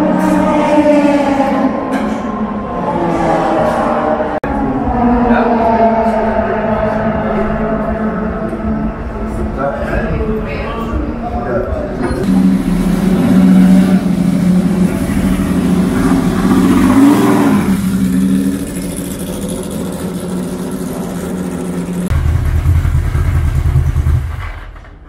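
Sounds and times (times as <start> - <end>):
deep engine rumble: 0.0 - 25.0
racing car engine idling: 11.7 - 24.8.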